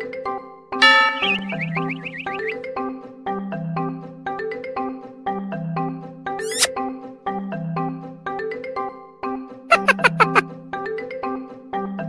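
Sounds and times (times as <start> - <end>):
high warbling tone: 0.8 - 2.4
background music with mallet notes: 0.8 - 6.3.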